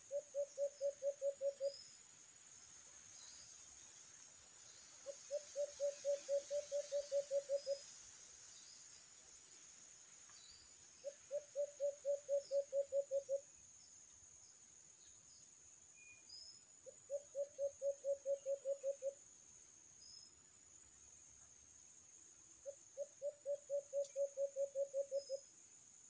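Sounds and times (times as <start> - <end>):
dove hooting: 0.0 - 1.7, 5.0 - 7.8, 11.0 - 13.4, 17.1 - 19.2, 22.6 - 25.4.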